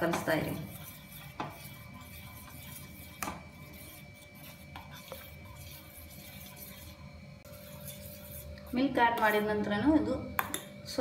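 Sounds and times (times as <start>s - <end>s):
metal spoon stirring in a pot: 0.0s - 9.8s.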